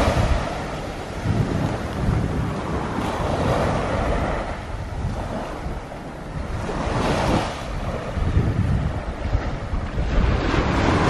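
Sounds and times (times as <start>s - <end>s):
small waves breaking on sand: 0.0s - 11.0s
wind buffeting microphone: 0.0s - 11.0s.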